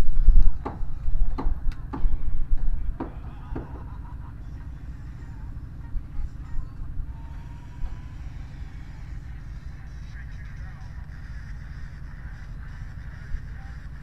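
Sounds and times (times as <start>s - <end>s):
heavy low rumble: 0.0s - 14.0s.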